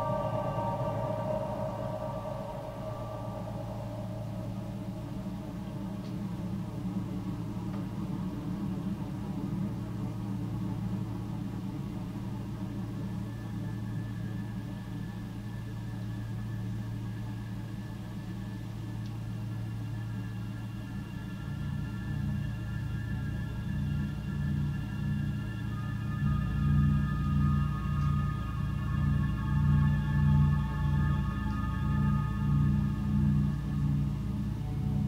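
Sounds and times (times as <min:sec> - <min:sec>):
thin high tone: 0:00.0 - 0:06.8
low synthesizer drone: 0:00.0 - 0:35.0.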